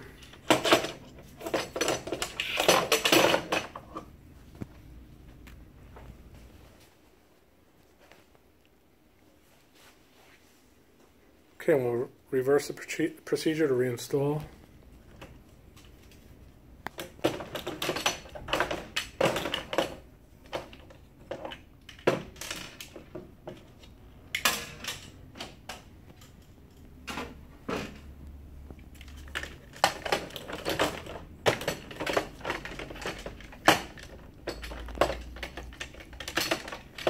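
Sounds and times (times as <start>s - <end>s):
plastic parts clicking and rattling: 0.0s - 4.7s, 15.1s - 37.0s.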